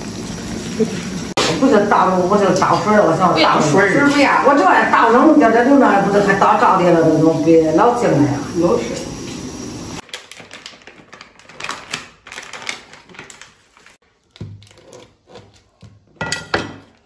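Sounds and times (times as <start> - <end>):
steaming wok hiss: 0.0 - 10.0.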